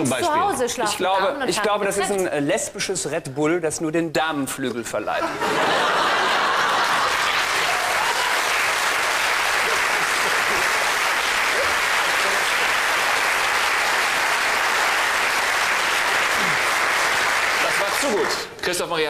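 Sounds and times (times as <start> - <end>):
audience applauding: 5.5 - 18.5.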